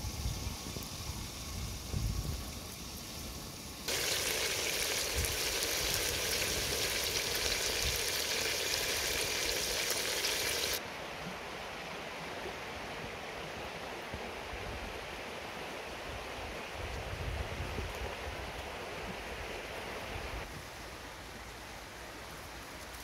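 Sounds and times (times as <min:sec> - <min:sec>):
meat and onions sizzling: 0:02.5 - 0:10.8.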